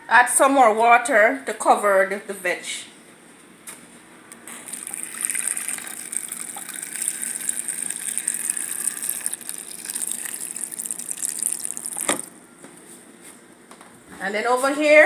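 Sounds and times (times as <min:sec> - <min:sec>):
water running into a jar: 0:04.4 - 0:12.4.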